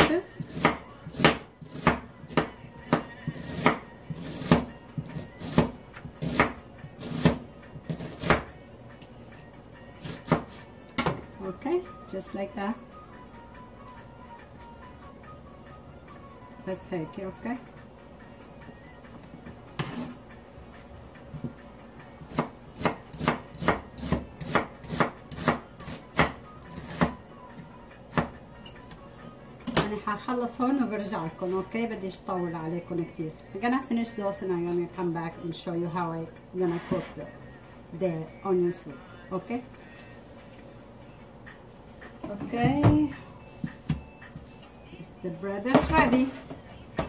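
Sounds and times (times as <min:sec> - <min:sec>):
knife slicing onion on board: 0:00.0 - 0:08.5, 0:10.0 - 0:11.2, 0:19.8 - 0:20.2, 0:22.2 - 0:27.2.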